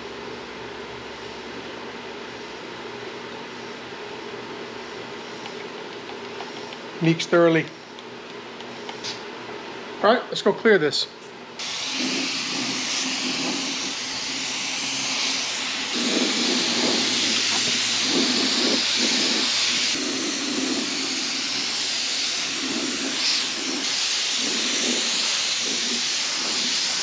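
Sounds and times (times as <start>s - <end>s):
spray gun hissing: 11.6s - 27.0s.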